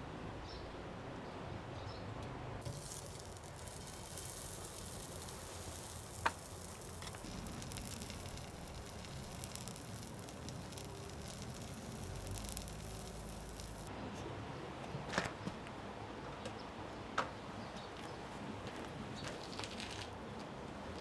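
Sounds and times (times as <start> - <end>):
barbecue grill sizzling: 2.6 - 13.9.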